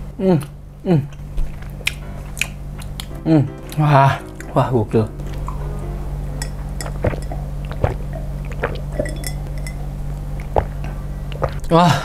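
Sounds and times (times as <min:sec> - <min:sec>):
steady low hum: 0:00.0 - 0:11.7
person gulping a drink: 0:06.8 - 0:09.7.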